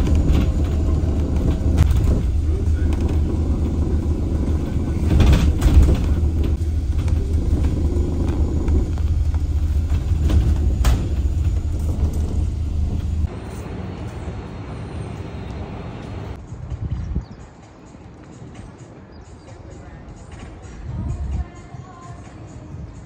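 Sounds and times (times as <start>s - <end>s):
knocks and rattles: 0.0s - 13.3s
hall ambience: 0.0s - 16.4s
bus engine rumble: 0.0s - 16.8s
road noise: 0.0s - 21.6s.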